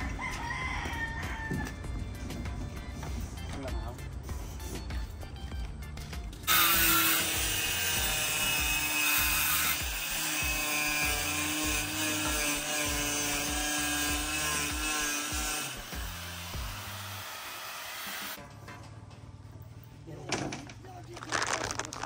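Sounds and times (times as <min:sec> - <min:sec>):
background music with low beat: 0:00.0 - 0:06.5
power saw cutting board: 0:06.4 - 0:18.4.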